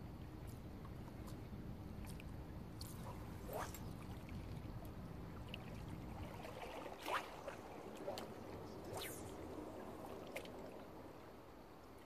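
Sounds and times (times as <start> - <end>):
sea water lapping against rocks: 6.1 - 8.4.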